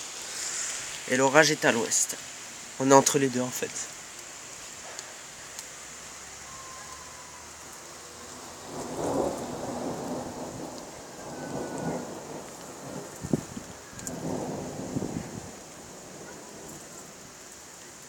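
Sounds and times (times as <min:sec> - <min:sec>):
rain hiss: 0:00.0 - 0:18.0
thunder rumbling: 0:06.5 - 0:17.4.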